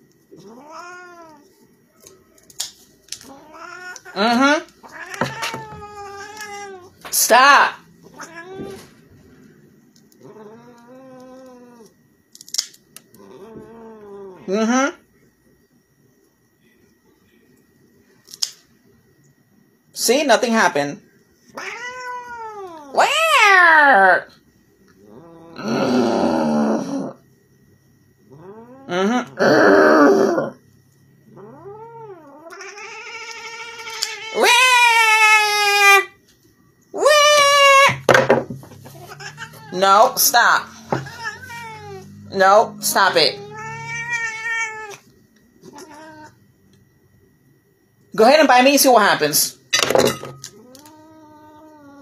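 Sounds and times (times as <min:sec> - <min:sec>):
cat yowling: 0:00.4 - 0:01.6, 0:03.2 - 0:07.0, 0:08.0 - 0:08.9, 0:10.2 - 0:11.9, 0:21.6 - 0:24.3, 0:31.3 - 0:36.2, 0:36.9 - 0:38.1, 0:38.8 - 0:46.4, 0:50.5 - 0:52.0.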